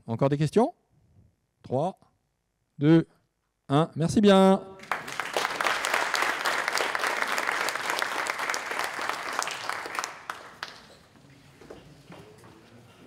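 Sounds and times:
audience applauding: 4.8s - 11.2s.

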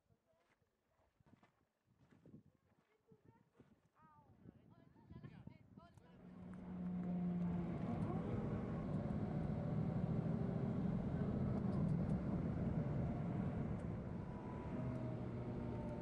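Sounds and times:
vehicle engine drone: 6.2s - 16.0s
road noise rushing: 6.3s - 16.0s.

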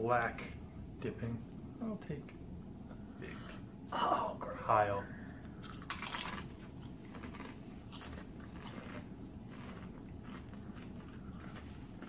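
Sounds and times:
chips being chewed: 5.6s - 12.0s.

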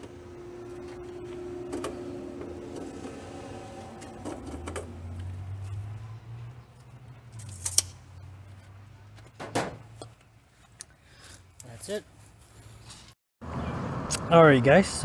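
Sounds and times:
metal hardware clinking: 7.3s - 8.0s.

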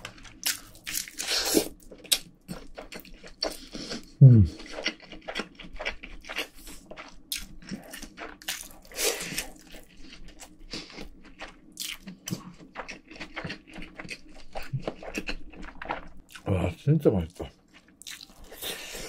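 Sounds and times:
person chewing food: 0.0s - 19.0s.

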